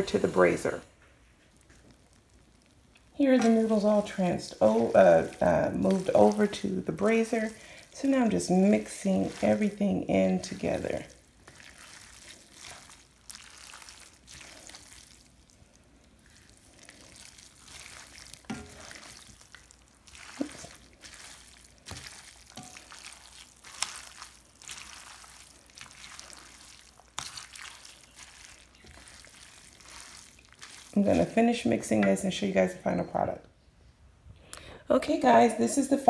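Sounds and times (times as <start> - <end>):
wet stirring of noodles: 0.0 - 32.7.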